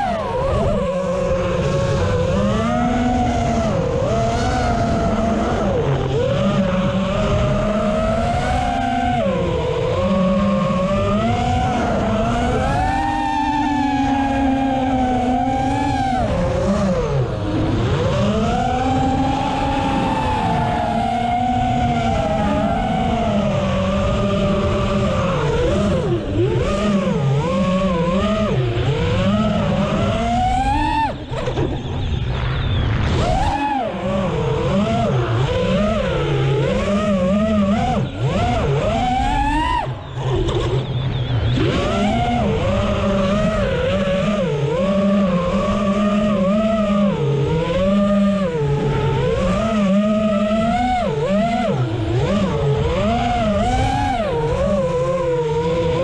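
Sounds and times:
drone motors whining: 0.0 - 56.0
low rushing noise: 28.7 - 36.2.

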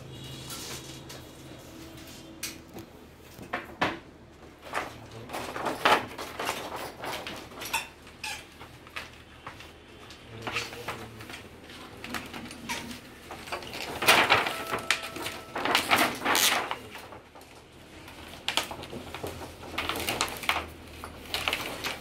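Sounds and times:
hard parts clicking and clattering: 12.2 - 17.2.

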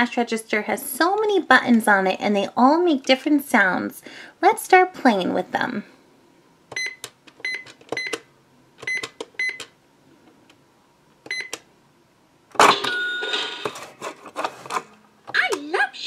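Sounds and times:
electronic cash register sound: 12.6 - 14.0.

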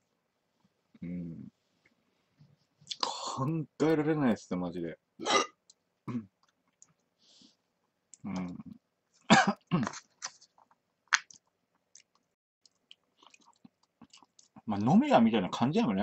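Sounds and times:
chewing: 9.8 - 14.6.

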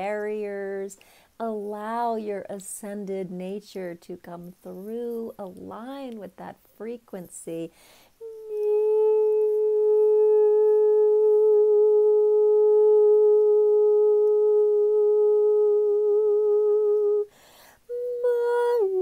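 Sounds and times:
woman singing long vowel: 0.0 - 17.3, 17.9 - 19.0
woman breathing: 1.0 - 1.4, 7.7 - 8.2, 17.3 - 17.9.

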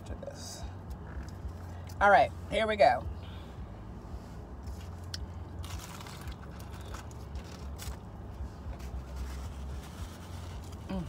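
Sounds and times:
low steady hum: 0.0 - 11.0
person chewing crunchy food: 5.0 - 8.3.

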